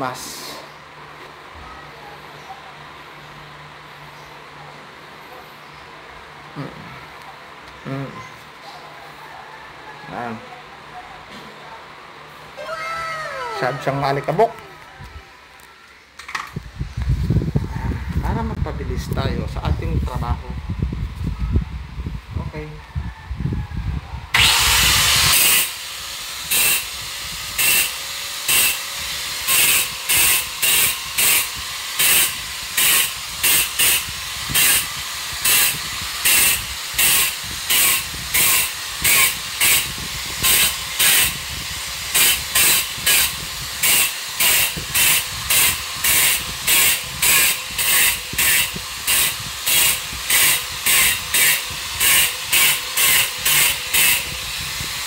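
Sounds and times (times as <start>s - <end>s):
power tool hissing on wall: 24.4s - 55.0s.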